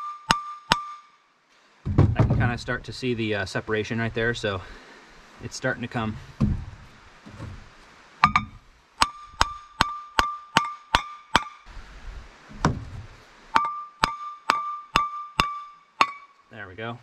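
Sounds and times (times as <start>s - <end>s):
dull thump: 1.8s - 2.8s, 6.1s - 10.0s, 12.5s - 13.7s.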